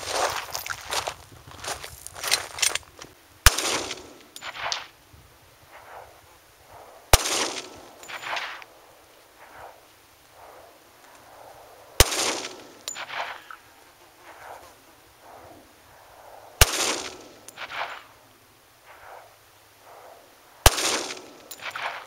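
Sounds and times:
gunshot echoes: 3.4s - 4.9s, 7.1s - 8.6s, 12.0s - 13.6s, 16.6s - 18.1s, 20.6s - 22.0s
pistol shots: 3.4s - 4.9s, 7.1s - 8.6s, 12.0s - 13.6s, 16.6s - 18.1s, 20.6s - 22.0s.

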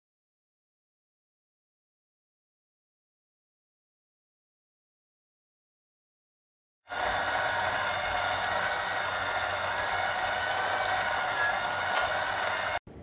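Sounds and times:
juicer motor whine and hum: 6.9s - 12.8s.

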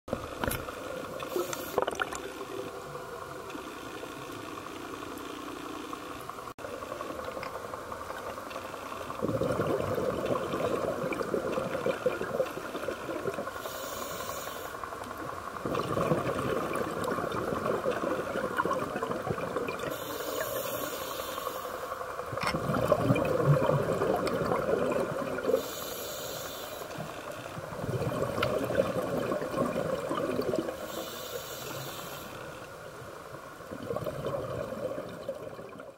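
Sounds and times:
muffled water noise: 0.1s - 35.9s
regulator inhale hiss: 1.2s - 1.8s, 13.5s - 14.9s, 19.9s - 22.0s, 25.5s - 27.5s, 30.8s - 32.7s
exhaust bubbles rushing: 1.8s - 2.4s, 9.2s - 13.4s, 15.6s - 19.9s, 22.6s - 25.5s, 27.8s - 30.7s, 33.7s - 35.9s.

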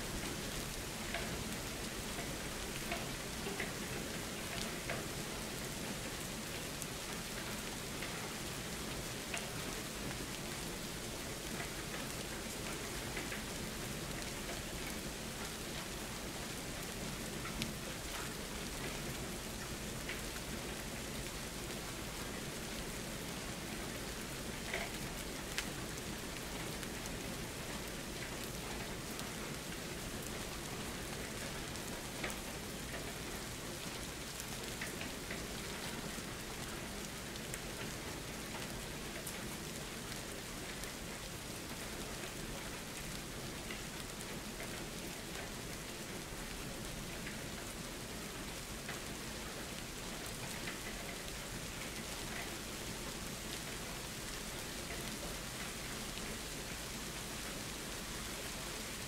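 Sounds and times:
steady rain hiss: 0.0s - 59.0s
sharp raindrop ticks: 0.3s - 15.6s, 16.9s - 59.0s.

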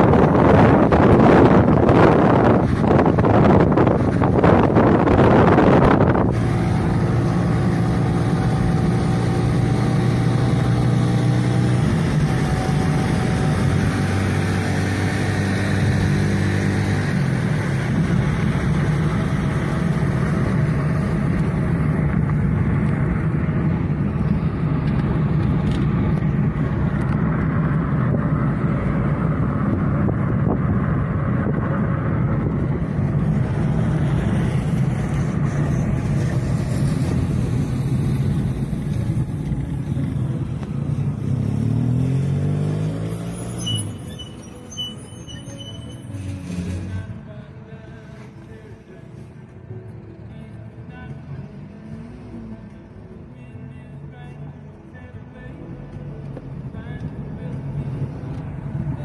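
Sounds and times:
wind noise: 0.0s - 41.2s
car engine drone: 0.0s - 59.0s
road roar: 0.0s - 59.0s.

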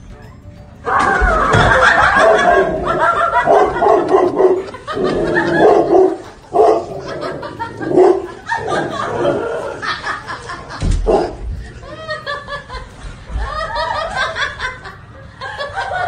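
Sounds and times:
dog barking: 2.0s - 7.2s, 7.8s - 9.0s, 11.1s - 11.4s.

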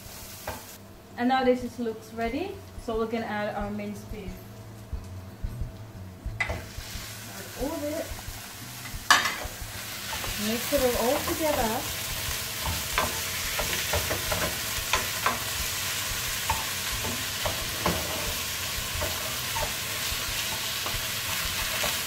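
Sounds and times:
meat sizzling in a frying pan: 0.0s - 0.8s, 6.6s - 22.0s
spatula scraping and tapping pan: 9.0s - 22.0s.

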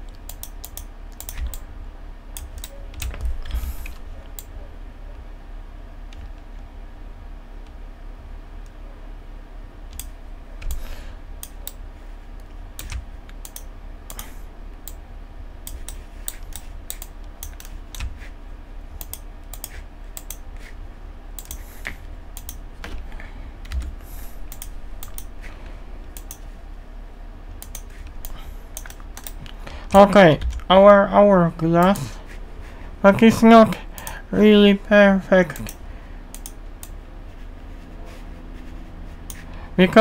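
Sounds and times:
keyboard keys clicking: 0.0s - 1.7s, 2.3s - 4.6s, 12.4s - 15.0s, 15.6s - 18.3s, 19.0s - 20.4s, 21.4s - 25.4s, 27.6s - 29.6s
steady low hum: 0.0s - 40.0s.

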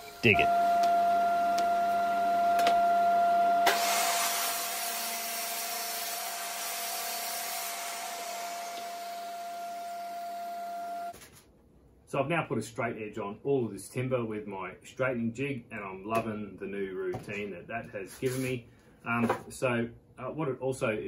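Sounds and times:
table saw motor whine: 0.5s - 11.1s
saw blade cutting wood: 3.6s - 9.3s.

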